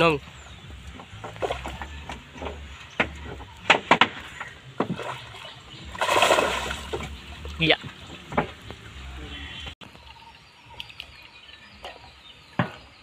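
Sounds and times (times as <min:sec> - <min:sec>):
net splashing in water: 0:04.8 - 0:07.2
water rushing: 0:04.8 - 0:09.2.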